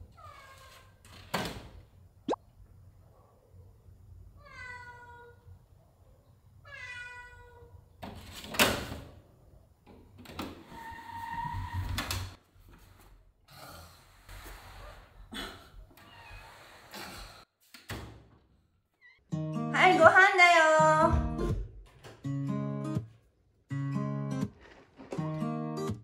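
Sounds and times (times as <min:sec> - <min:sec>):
cat meowing: 0:04.4 - 0:05.4, 0:06.6 - 0:07.7
knocks and scuffling: 0:24.4 - 0:25.5.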